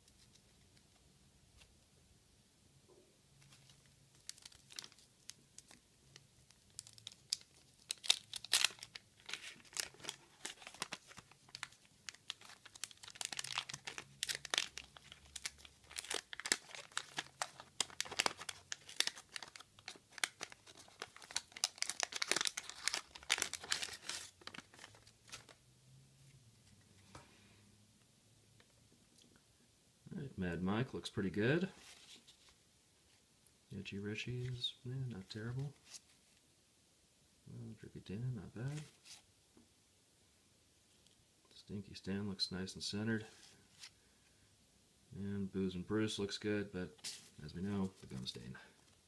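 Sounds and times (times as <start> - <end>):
wax paper wrapper crackling: 3.4 - 25.6.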